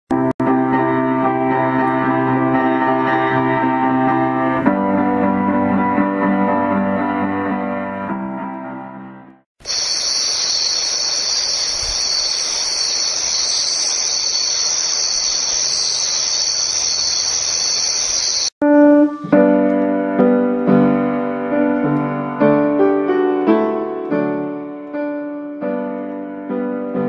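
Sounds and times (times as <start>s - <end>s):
piano music: 0.1s - 9.4s, 18.6s - 27.0s
crickets chirping: 9.6s - 18.5s.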